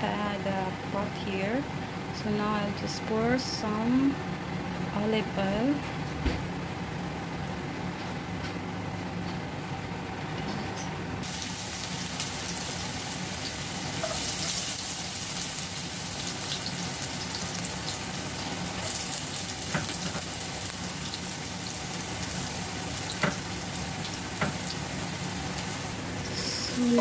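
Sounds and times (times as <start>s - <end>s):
garlic sizzling in hot oil: 11.2s - 27.0s.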